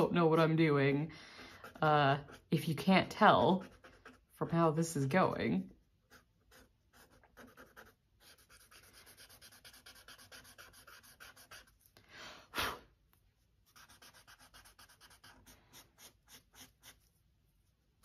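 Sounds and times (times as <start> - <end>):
charcoal scratching on paper: 1.5 - 4.5, 6.0 - 11.9, 13.6 - 17.2
breathy puff: 12.0 - 12.9.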